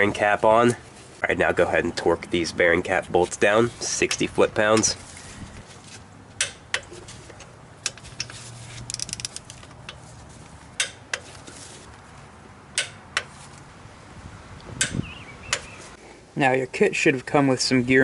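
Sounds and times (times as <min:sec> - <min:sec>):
torque wrench clicks: 0:08.9 - 0:09.6.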